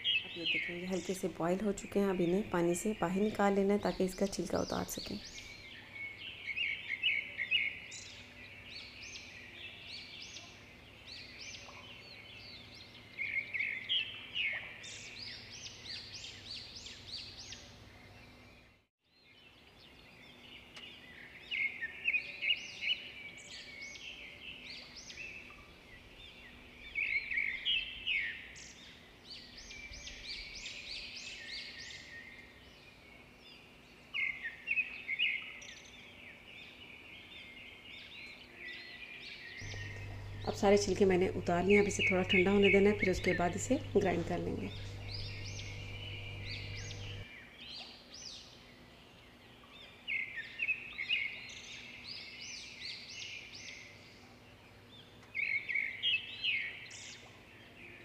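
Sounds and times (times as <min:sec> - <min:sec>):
birds chirping: 0:00.0 - 0:18.4, 0:39.6 - 0:47.3.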